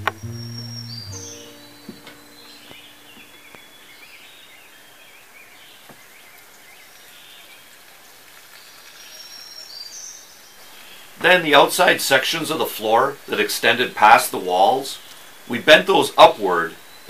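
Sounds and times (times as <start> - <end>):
birds chirping and whistling: 0.0 - 6.8
steady hiss: 0.0 - 17.0.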